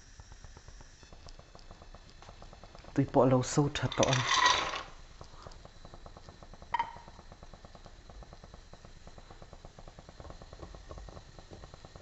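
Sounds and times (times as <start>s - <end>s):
water crackling in frying pan: 0.0s - 12.0s.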